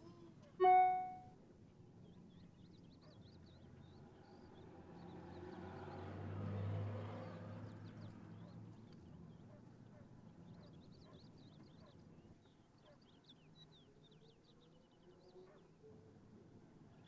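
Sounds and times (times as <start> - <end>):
small birds chirping: 2.0 - 15.8
motor vehicle passing by: 3.8 - 10.6.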